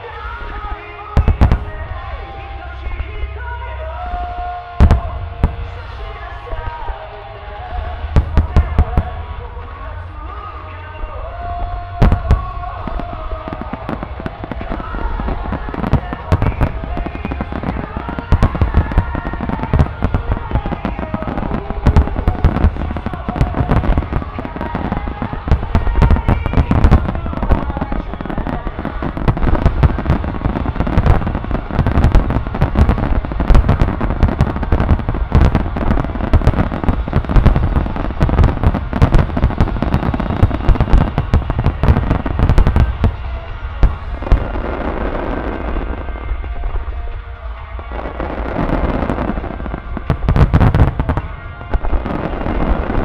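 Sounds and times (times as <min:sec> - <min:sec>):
fireworks booming and crackling: 0:00.0 - 0:53.0.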